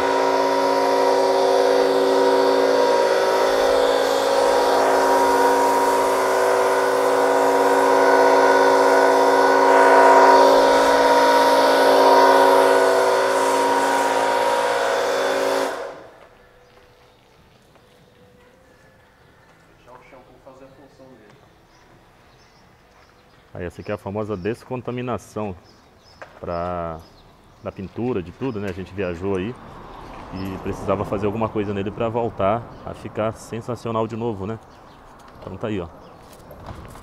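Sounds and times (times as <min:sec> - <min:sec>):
pressure washer motor hum: 0:00.0 - 0:16.2
water jet hissing: 0:00.0 - 0:16.2.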